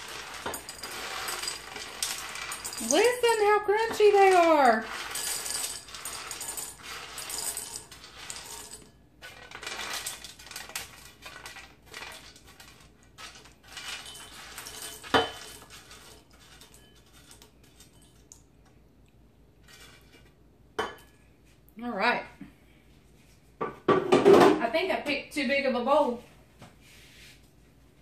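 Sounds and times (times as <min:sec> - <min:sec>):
chickpeas rattling on metal pan: 0:00.0 - 0:18.2.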